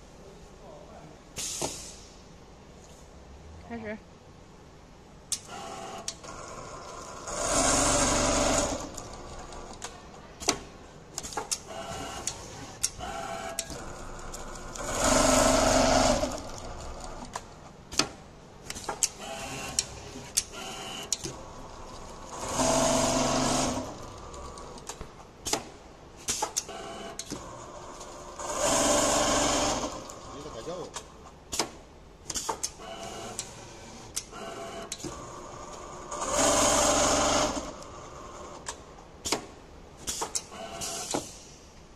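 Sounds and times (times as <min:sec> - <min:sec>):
sewing machine stitching: 0:05.6 - 0:09.8, 0:11.4 - 0:17.4, 0:18.8 - 0:24.8, 0:34.4 - 0:37.9.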